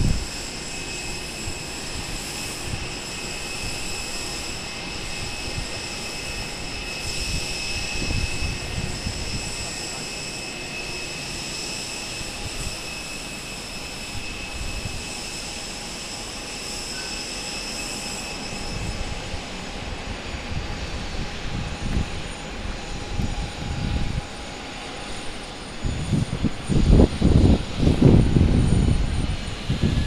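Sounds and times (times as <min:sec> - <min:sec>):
wind buffeting microphone: 0:00.0 - 0:10.1, 0:14.1 - 0:15.2, 0:18.6 - 0:30.0
jet engine rushing and whining: 0:00.0 - 0:30.0.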